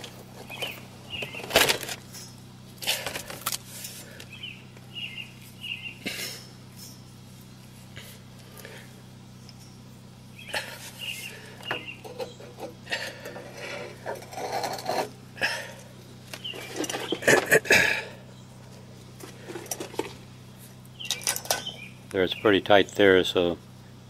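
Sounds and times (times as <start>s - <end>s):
metal clinks of breaker bar: 21.0s - 21.7s.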